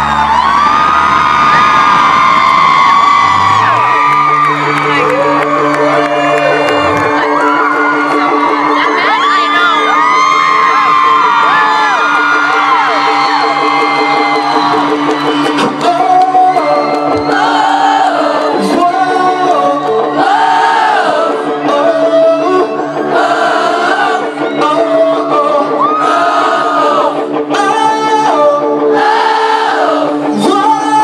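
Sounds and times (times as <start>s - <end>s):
live pop-rock band: 0.0s - 31.0s
crowd singing along: 14.4s - 31.0s.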